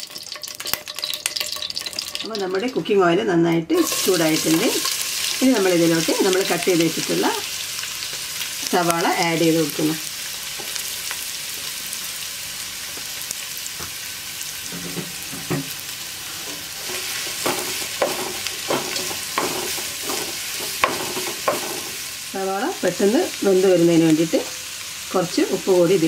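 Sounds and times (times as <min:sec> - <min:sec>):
onions sizzling in oil: 0:00.0 - 0:02.9, 0:03.7 - 0:26.0
spatula scraping and knocking pan: 0:14.7 - 0:15.8, 0:16.4 - 0:22.0.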